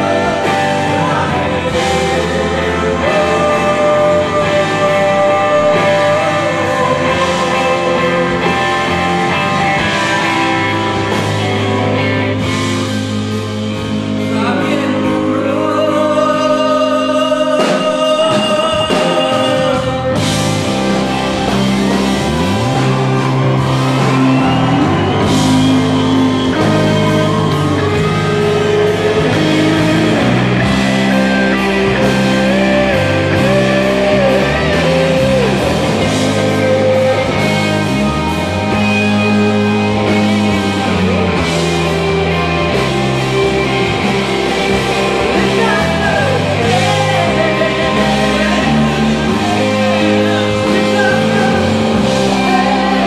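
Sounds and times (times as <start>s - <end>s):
man singing into microphone: 0.0s - 10.3s, 14.2s - 20.4s, 24.9s - 37.6s, 45.3s - 53.0s
live rock band playing: 0.0s - 53.0s.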